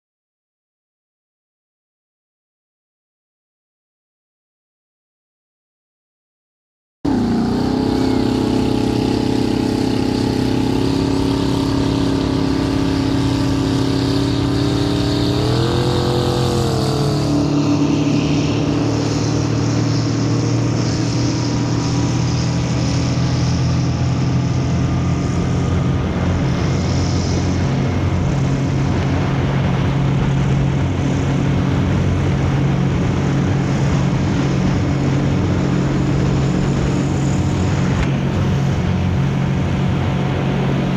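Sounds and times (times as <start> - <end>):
motorboat engine running: 7.1 - 40.9.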